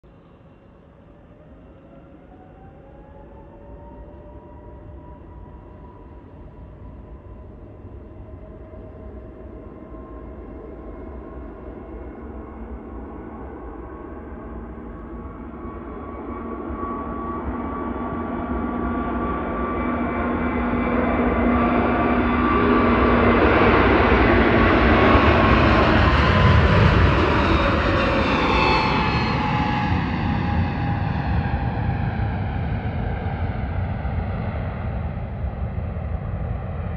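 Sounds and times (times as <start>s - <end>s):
faint engine whining tones: 0.2s - 36.4s
jet engines roaring: 17.4s - 36.9s.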